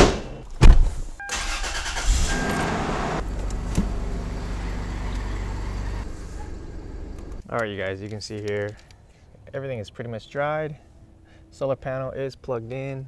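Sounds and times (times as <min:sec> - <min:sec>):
car engine starting and idling: 0:01.3 - 0:07.4
car door shutting: 0:02.1 - 0:05.5.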